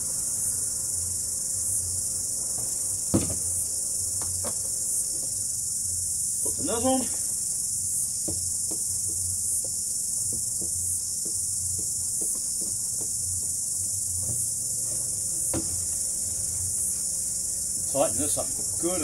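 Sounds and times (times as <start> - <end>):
insects shrilling: 0.0 - 19.0.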